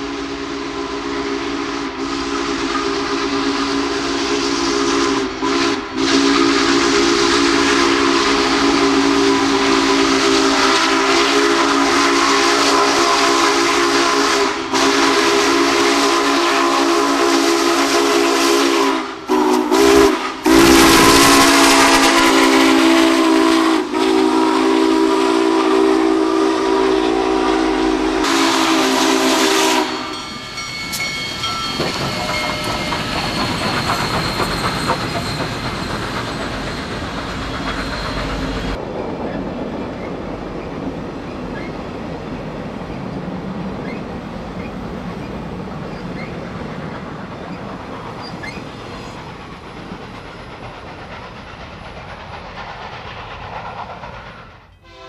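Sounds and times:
steam whistle blowing: 0.0 - 36.0, 54.8 - 55.0.

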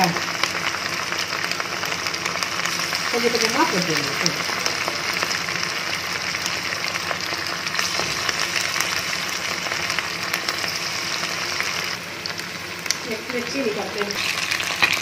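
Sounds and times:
chicken deep-frying in hot oil: 0.0 - 15.0.

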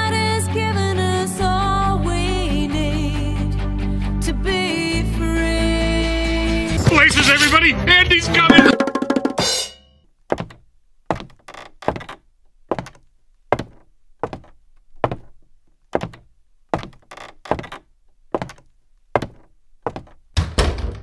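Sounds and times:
heavy footsteps thudding: 10.3 - 17.8, 18.4 - 20.6.

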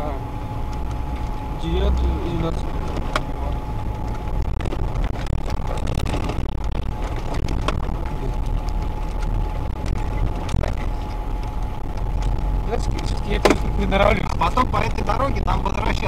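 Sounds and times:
engine and road rumble: 0.0 - 16.0
thin steady whine: 0.0 - 16.0.

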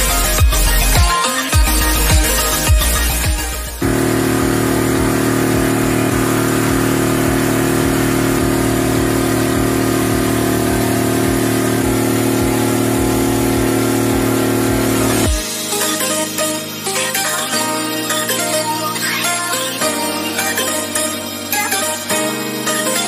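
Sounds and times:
boat engine running: 1.6 - 15.5.

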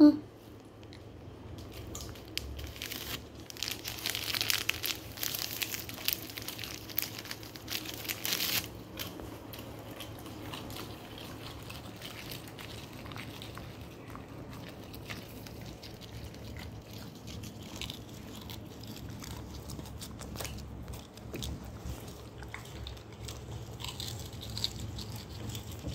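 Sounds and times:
dogs crunching a snack: 0.5 - 25.9
plastic packet crackling: 1.7 - 9.8.

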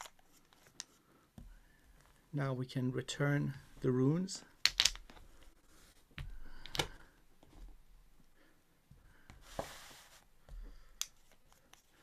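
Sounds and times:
paper sliding across a table: 9.4 - 10.3.

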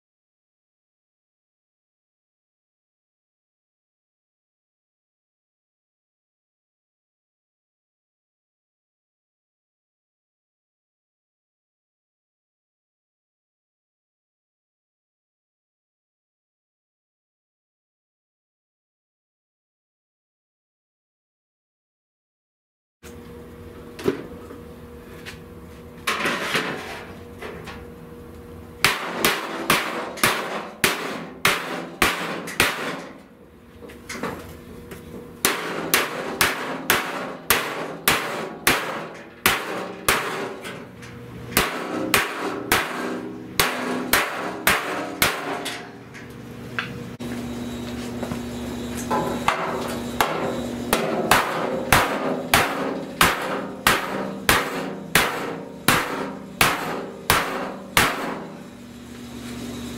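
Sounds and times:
hammer striking sheet steel: 28.8 - 33.3, 35.4 - 46.1, 49.0 - 58.8.

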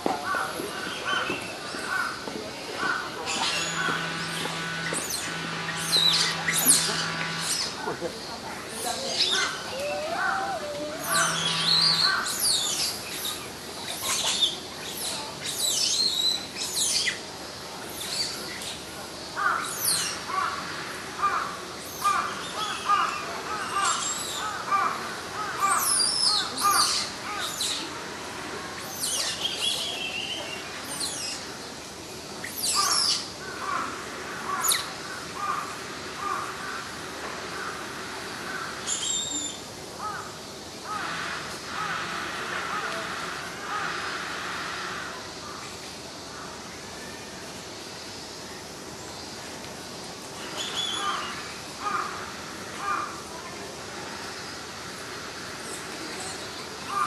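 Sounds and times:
high downward-sweeping bird calls: 3.3 - 7.9, 8.8 - 14.6.

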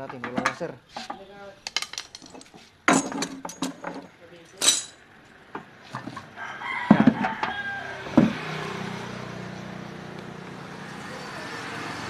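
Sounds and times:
rooster crowing: 6.3 - 8.9
sharp knocks: 6.9 - 8.4.

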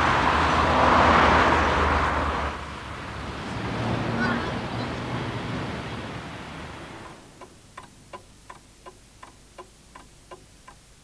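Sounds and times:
street traffic noise: 0.0 - 8.7
clock ticking: 7.0 - 10.9.

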